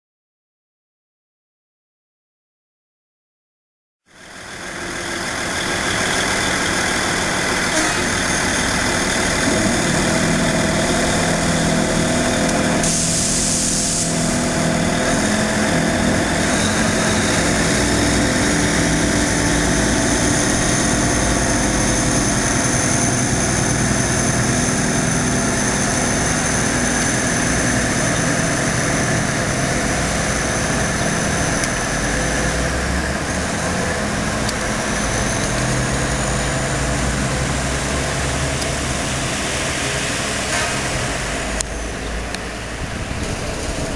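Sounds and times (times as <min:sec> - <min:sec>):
train diesel engine running: 0:04.2 - 0:43.9
brief hiss: 0:12.8 - 0:14.7.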